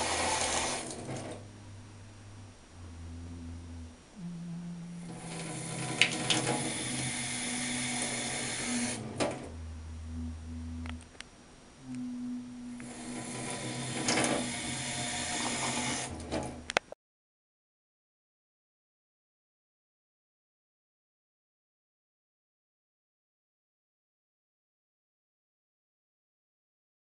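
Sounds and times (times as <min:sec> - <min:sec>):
water rushing through tap: 0:00.0 - 0:01.4, 0:05.1 - 0:09.4, 0:12.8 - 0:16.6
low hum of tones: 0:00.0 - 0:16.9.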